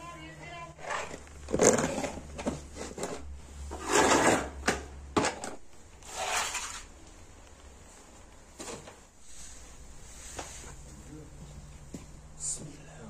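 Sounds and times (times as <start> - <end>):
tool scraping concrete: 6.0 - 6.9.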